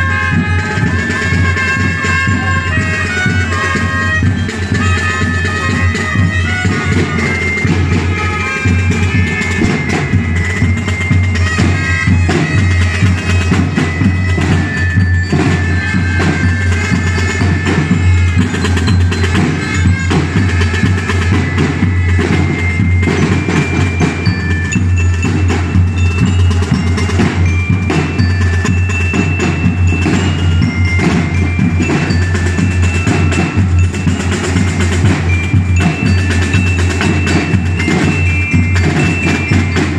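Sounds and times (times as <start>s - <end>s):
bugles holding sustained notes: 0.0s - 22.6s
bell-like mallet percussion: 0.0s - 39.9s
drums: 0.0s - 39.9s.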